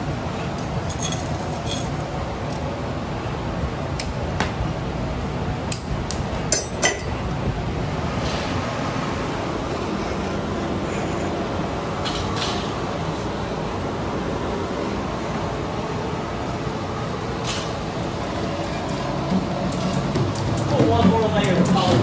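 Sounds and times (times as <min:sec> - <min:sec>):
metal tools clinking on glass: 0:00.8 - 0:02.0.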